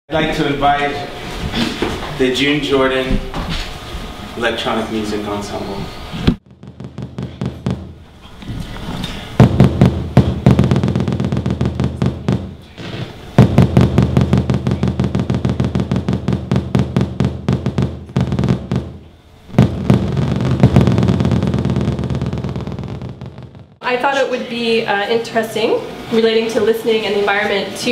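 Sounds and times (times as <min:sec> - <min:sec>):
low droning electronic tones: 0:05.5 - 0:08.2, 0:09.4 - 0:23.8
fast dense clicking pulses: 0:06.4 - 0:08.7, 0:09.4 - 0:23.8.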